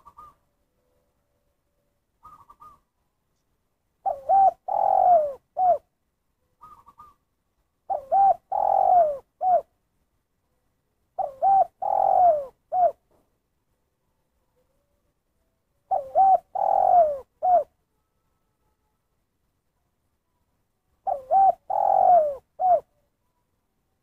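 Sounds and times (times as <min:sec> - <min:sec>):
dove cooing: 0:00.0 - 0:01.0, 0:02.2 - 0:02.9, 0:04.0 - 0:05.9, 0:06.6 - 0:07.2, 0:07.9 - 0:09.7, 0:11.1 - 0:13.1, 0:15.9 - 0:17.8, 0:21.0 - 0:23.0.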